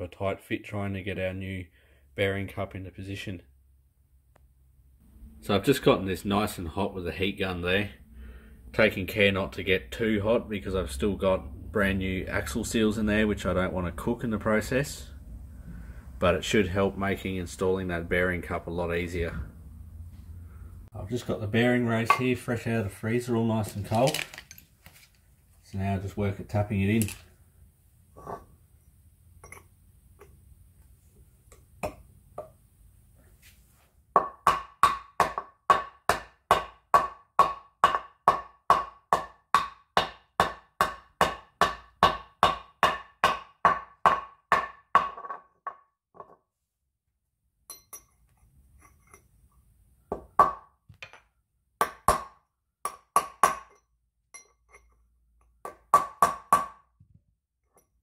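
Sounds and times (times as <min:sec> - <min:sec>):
ringing hammer taps on metal: 0:47.7 - 0:48.2.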